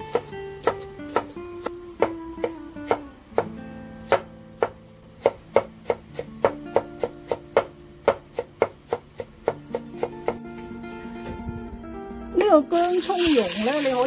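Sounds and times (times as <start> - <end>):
knife chopping on wooden board: 0.0 - 10.4
plucked guitar music: 0.0 - 14.0.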